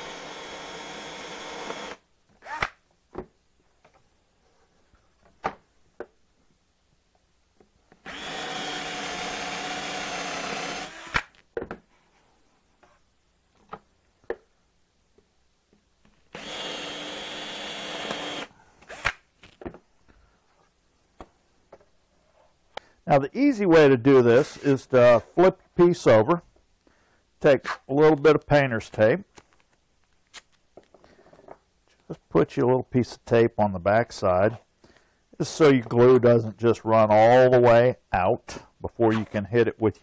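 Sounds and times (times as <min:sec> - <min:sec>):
cordless drill boring: 0:00.0 - 0:02.8, 0:08.0 - 0:11.3, 0:16.3 - 0:19.2.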